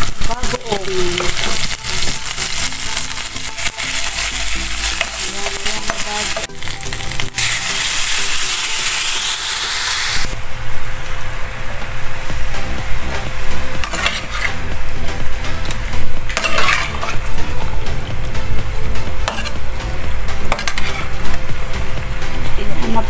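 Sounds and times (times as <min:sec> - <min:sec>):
liquid hissing in hot pan: 0:00.0 - 0:06.2, 0:06.8 - 0:10.3
food sizzling in oil: 0:00.0 - 0:23.0
spatula scraping pan: 0:13.8 - 0:14.7, 0:16.3 - 0:17.3, 0:19.2 - 0:19.6, 0:20.5 - 0:21.2.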